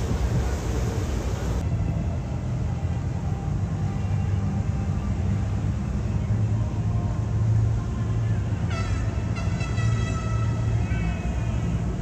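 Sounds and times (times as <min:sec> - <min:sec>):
boat engine rumbling: 0:00.0 - 0:01.6.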